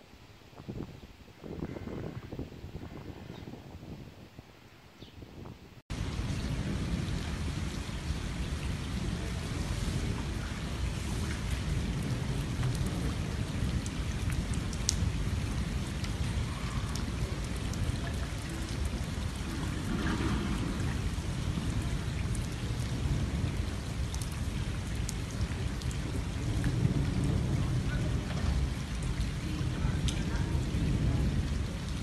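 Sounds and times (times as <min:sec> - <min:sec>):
rain hissing on flooded street: 0:05.9 - 0:32.0
sharp ticks of raindrops: 0:05.9 - 0:32.0.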